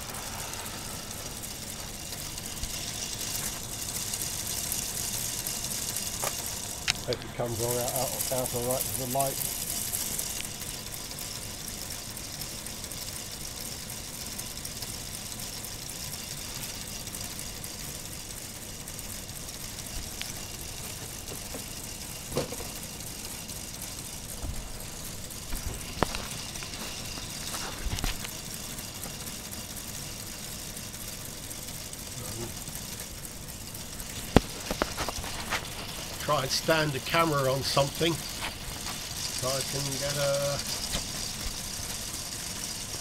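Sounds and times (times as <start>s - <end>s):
toy model engine whirring: 0.0s - 43.0s.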